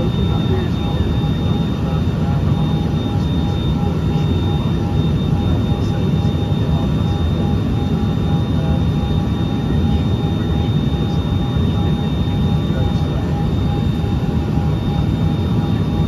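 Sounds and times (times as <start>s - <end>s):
jet cabin roar: 0.0s - 16.0s.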